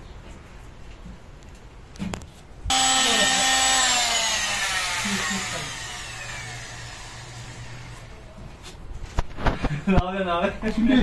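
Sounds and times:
power tool motor whine: 0:02.7 - 0:08.2.

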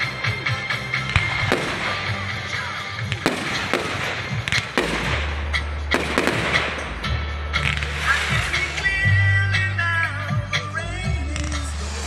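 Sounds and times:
fireworks bursting with sharp bangs: 0:00.8 - 0:09.2.

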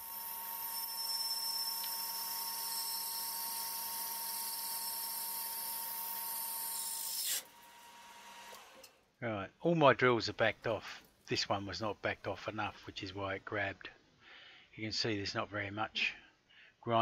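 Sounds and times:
drill chatter cutting plastic: 0:00.0 - 0:09.0.

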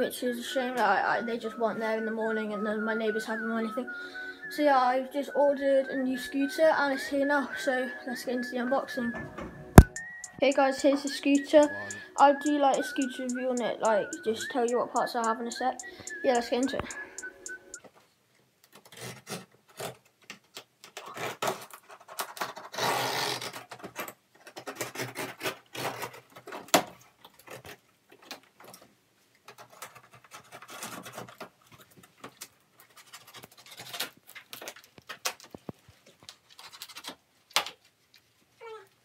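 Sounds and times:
small scratches and clicks: 0:18.6 - 0:39.0
blade cutting packing tape: 0:21.0 - 0:23.8, 0:24.6 - 0:26.2.

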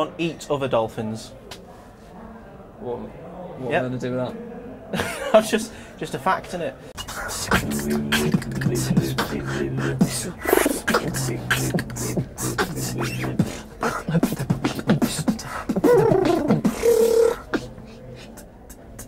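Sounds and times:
beatboxing: 0:07.0 - 0:19.0.

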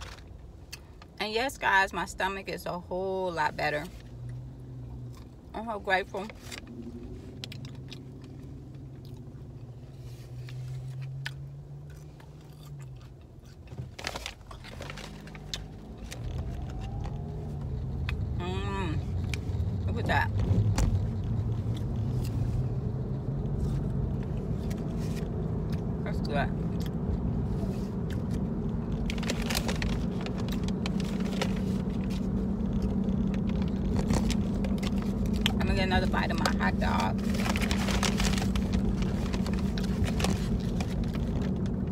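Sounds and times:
low car engine hum: 0:00.0 - 0:41.9
chewing crunchy food: 0:10.4 - 0:17.2.

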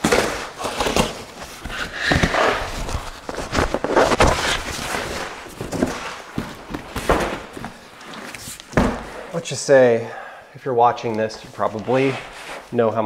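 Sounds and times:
cardboard scraping and rustling: 0:00.0 - 0:09.1.

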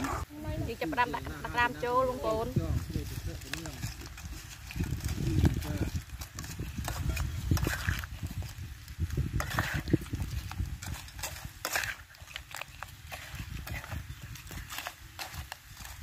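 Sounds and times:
spatula scraping wok: 0:03.9 - 0:16.0.

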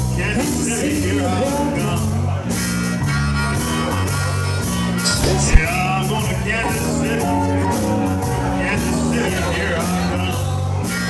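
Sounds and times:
short sharp thump: 0:05.2 - 0:05.7.

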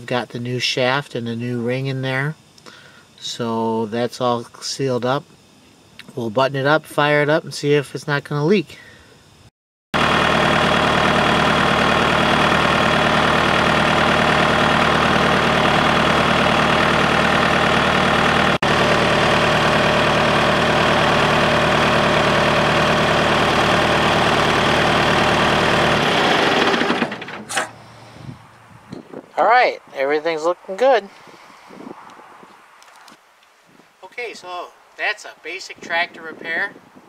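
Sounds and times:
tractor engine idling: 0:10.0 - 0:28.6.

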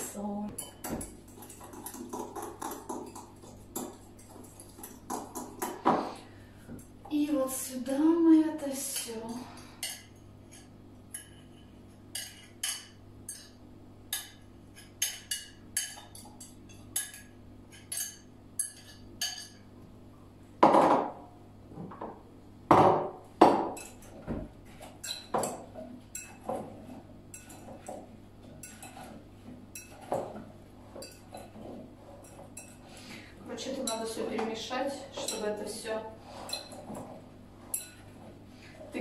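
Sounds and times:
metal spoon clinking on glass bowl: 0:09.8 - 0:19.6.

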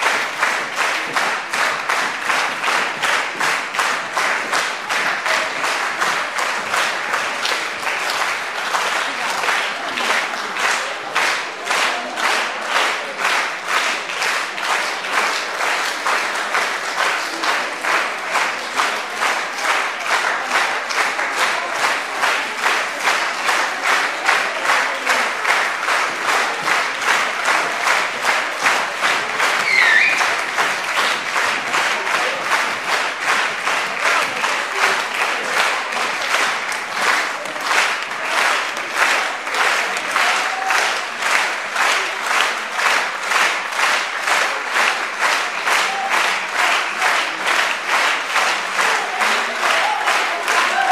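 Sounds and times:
audience clapping in time: 0:00.0 - 0:50.9.

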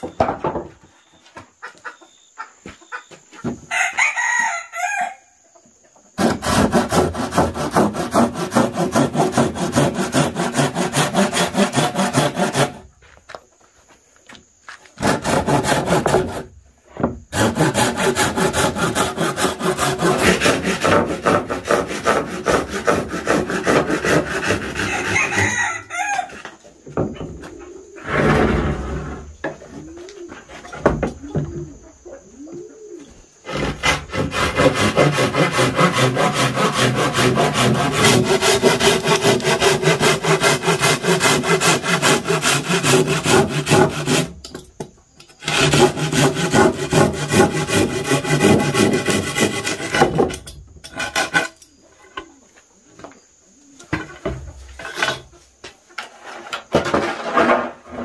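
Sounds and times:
rooster crowing: 0:03.7 - 0:05.4, 0:24.8 - 0:26.4
hand saw cutting wood: 0:06.2 - 0:12.9, 0:15.0 - 0:16.5, 0:17.3 - 0:25.7, 0:33.4 - 0:44.6, 0:45.4 - 0:51.6.

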